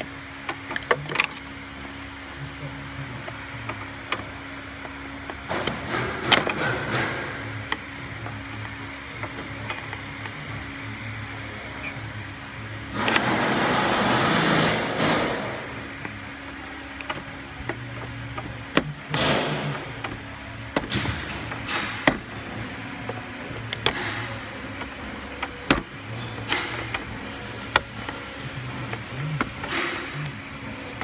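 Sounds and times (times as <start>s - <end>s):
steady low hum: 0.0s - 31.0s
sharp clicks and knocks: 3.2s - 10.4s, 14.4s - 31.0s.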